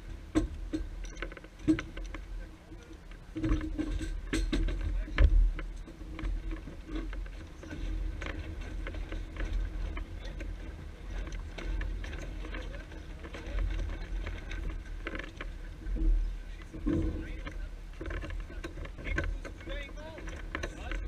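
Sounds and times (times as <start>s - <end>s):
knocks and rattles of rigging: 0.0s - 21.0s
wind rumbling on microphone: 0.0s - 21.0s.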